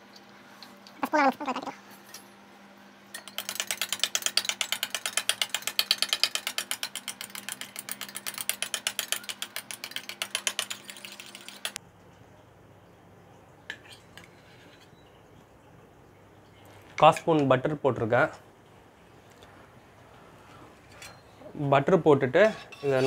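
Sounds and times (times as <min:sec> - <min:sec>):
eggs beaten in metal tumbler: 0:03.2 - 0:11.8.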